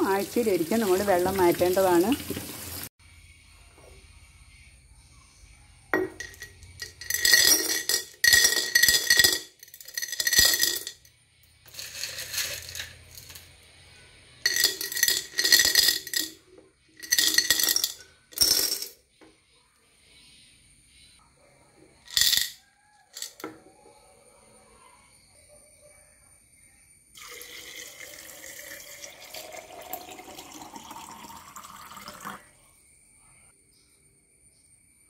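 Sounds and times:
pebbles clinking into glass jar: 6.0 - 13.6, 14.4 - 19.0, 22.1 - 23.6.

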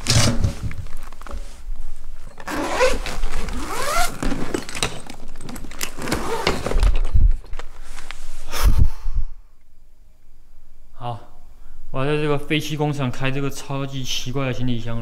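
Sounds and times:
handling scraping and clicks: 2.2 - 8.2.

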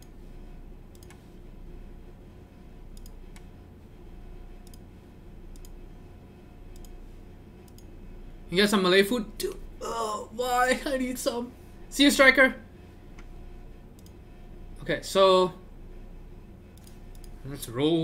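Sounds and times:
low steady hum: 0.0 - 18.0
computer mouse clicks: 0.9 - 1.3, 2.9 - 3.6, 4.6 - 4.9, 5.5 - 5.8, 6.7 - 7.0, 7.6 - 7.9, 13.9 - 14.2, 16.7 - 17.4.

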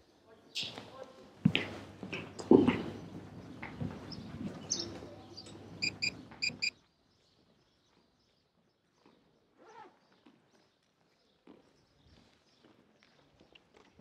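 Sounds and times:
short high chirps: 5.8 - 6.7.

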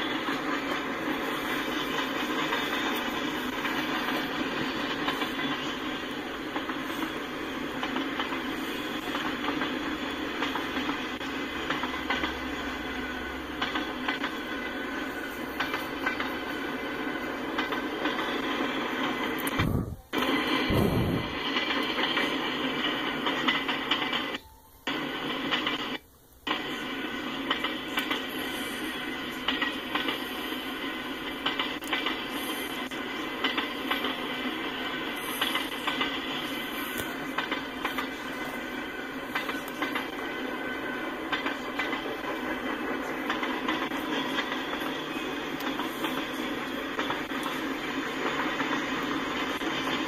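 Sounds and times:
wheels clicking over rail joints: 0.0 - 20.3, 29.3 - 50.0
freight train wheels rumbling: 0.0 - 50.0.

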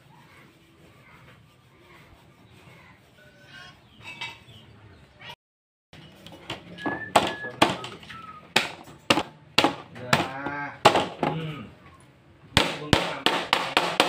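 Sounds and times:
sharp knocks on panel: 8.6 - 11.4, 12.6 - 14.0.

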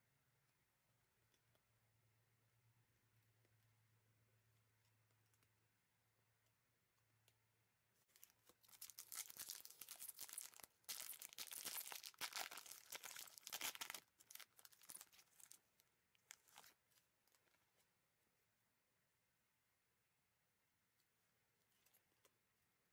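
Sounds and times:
plastic wrapper tearing and crinkling: 8.1 - 16.8.

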